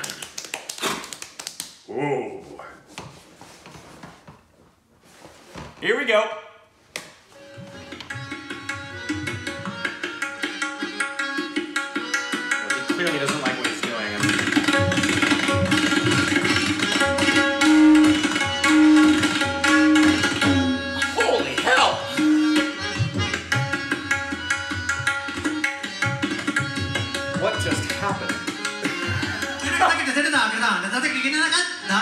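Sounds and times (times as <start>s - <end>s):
tabla played fast: 7.5s - 30.6s.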